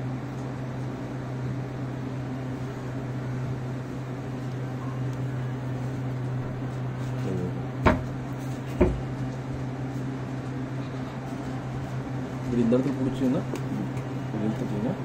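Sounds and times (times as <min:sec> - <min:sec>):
low mechanical hum: 0:00.0 - 0:15.0
sharp knocks: 0:07.8 - 0:08.2, 0:08.8 - 0:09.1.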